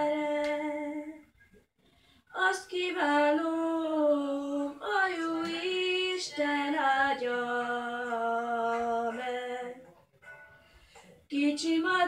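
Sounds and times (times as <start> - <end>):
boy singing unaccompanied: 2.4 - 9.8.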